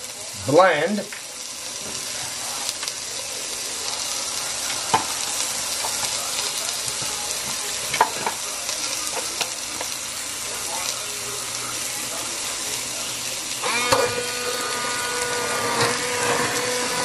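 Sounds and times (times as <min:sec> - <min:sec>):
chicken sizzling in a pan: 0:00.0 - 0:17.0.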